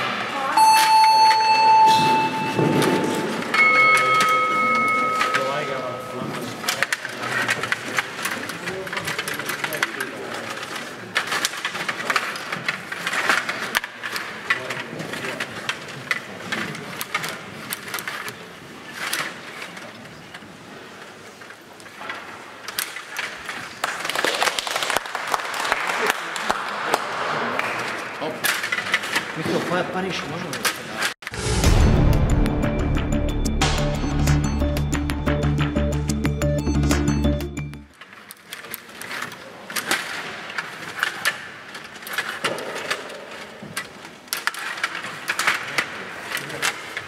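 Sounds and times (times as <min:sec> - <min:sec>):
table hockey rods clattering: 0:00.8 - 0:20.4, 0:27.6 - 0:31.2, 0:37.9 - 0:47.0
plastic players clacking on puck: 0:02.6 - 0:31.2, 0:37.9 - 0:47.0.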